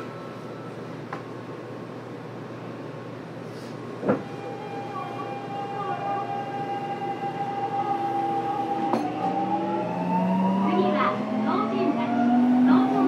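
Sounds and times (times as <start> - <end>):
train inverter whining: 3.9 - 13.0.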